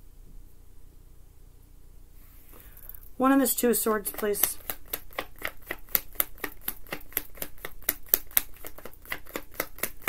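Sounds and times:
cards being shuffled: 3.8s - 10.0s.

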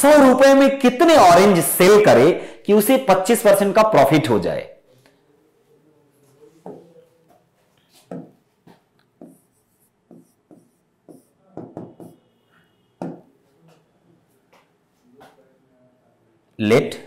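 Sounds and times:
pen tapping on screen: 8.1s - 8.4s, 9.0s - 12.2s, 13.0s - 13.3s.

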